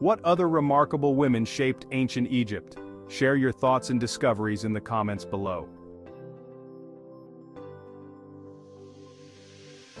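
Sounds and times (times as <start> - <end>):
airy hiss: 8.7 - 10.0.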